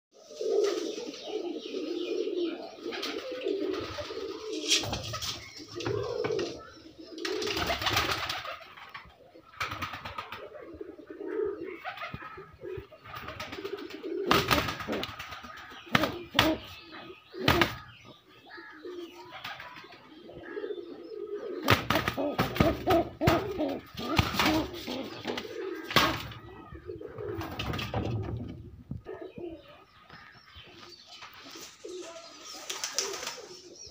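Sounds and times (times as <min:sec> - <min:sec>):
pigeons cooing: 0:00.1 - 0:33.9
knocks and rustling: 0:27.3 - 0:29.1.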